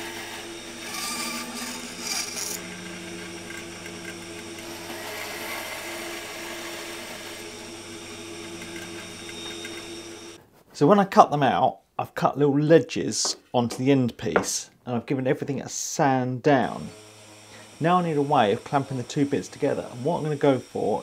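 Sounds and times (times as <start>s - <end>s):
bandsaw cutting plywood: 0.0s - 10.4s, 16.6s - 21.0s.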